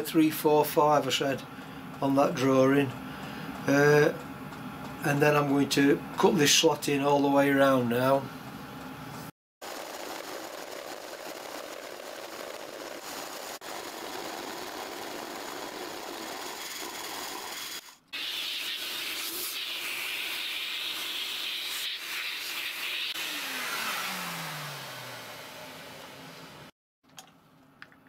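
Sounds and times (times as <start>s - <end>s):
vacuum cleaner hissing: 9.6s - 26.7s
milling machine cutting steel: 9.7s - 26.7s.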